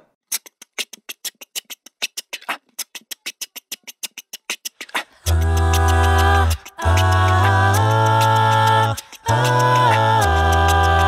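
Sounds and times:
beatboxing hi-hat clicks: 0.2s - 11.0s
vocal group singing a chord: 5.2s - 11.0s
deep vocal bass note: 5.3s - 11.0s.

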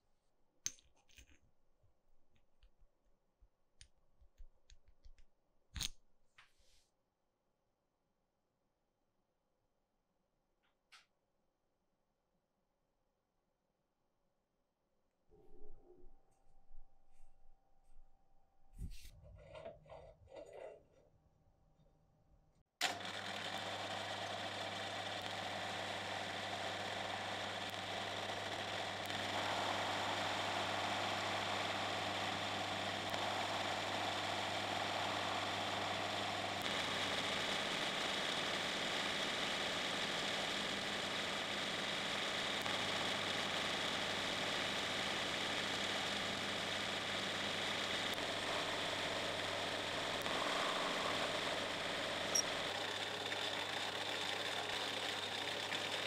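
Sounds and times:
lathe motor hum: 22.8s - 56.0s
lathe machining hiss: 29.0s - 37.8s, 47.7s - 53.8s.

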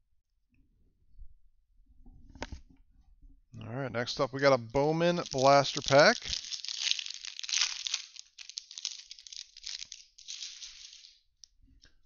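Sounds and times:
plastic wrapper crinkling and tearing: 4.9s - 11.2s.

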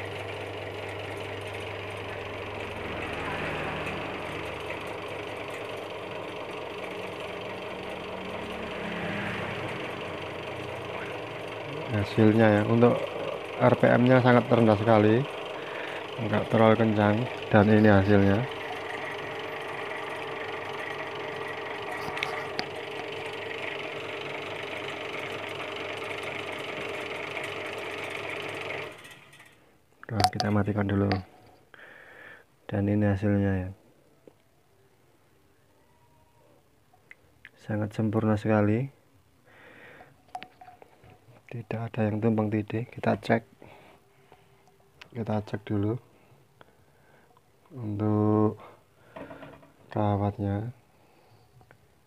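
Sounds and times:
motor mechanical hum: 0.0s - 32.4s.

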